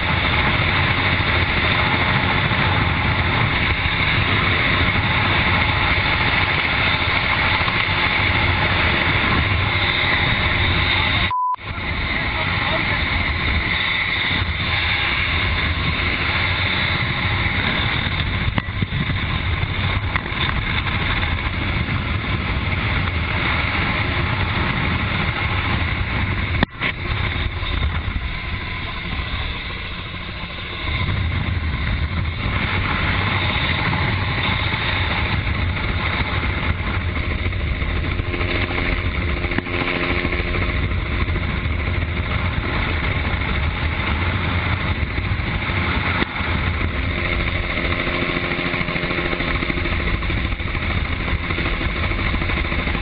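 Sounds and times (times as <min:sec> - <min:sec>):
light aircraft engine drone: 0:00.0 - 0:53.0
wind rushing: 0:00.0 - 0:53.0.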